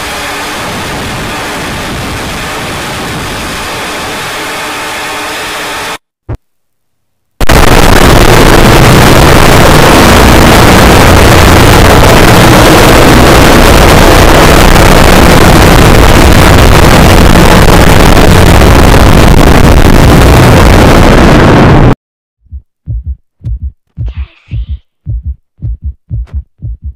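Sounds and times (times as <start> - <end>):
distorted static-like noise: 0.0 - 22.0.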